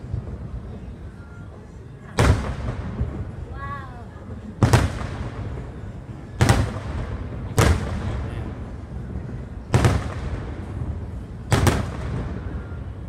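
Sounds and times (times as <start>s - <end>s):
firework shells booming: 2.2s - 3.5s, 4.5s - 13.0s.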